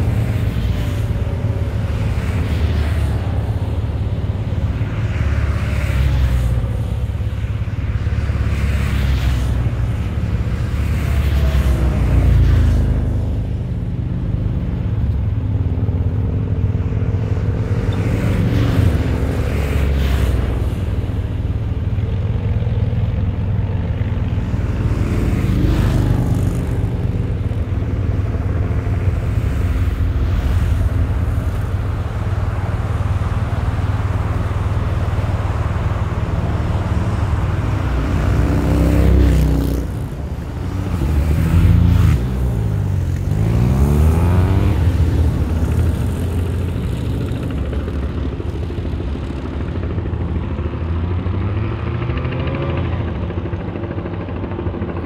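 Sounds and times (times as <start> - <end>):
motorcycle engines approaching: 0.0 - 55.0
motorcycle passing by: 16.8 - 55.0.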